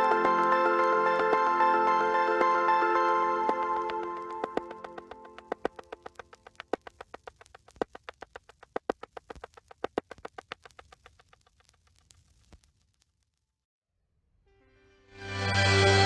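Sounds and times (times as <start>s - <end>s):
background music: 0.0s - 5.8s, 15.0s - 16.0s.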